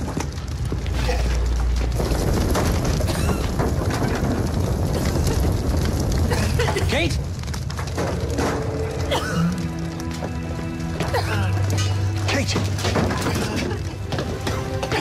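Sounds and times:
deep low rumble: 0.0s - 12.2s
fire crackling: 0.0s - 15.0s.

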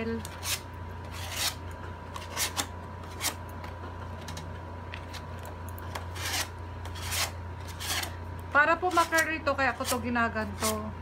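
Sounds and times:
low electrical hum: 0.0s - 11.0s
scissor blade scraping cardboard: 0.2s - 3.4s, 5.9s - 8.2s, 8.8s - 10.9s.

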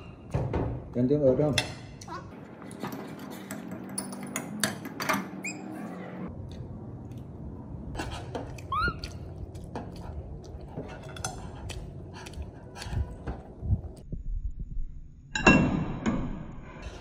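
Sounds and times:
short squeak: 5.4s - 6.2s.

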